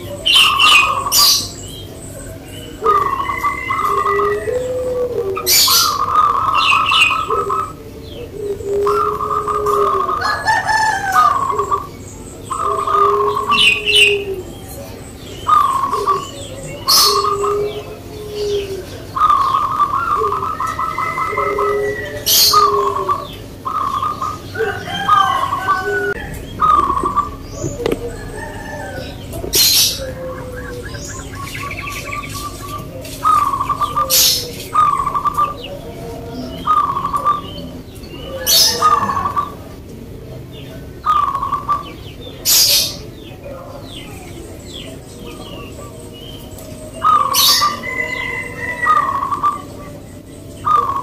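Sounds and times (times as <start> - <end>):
doves cooing with rattling trill: 0.0 - 51.0.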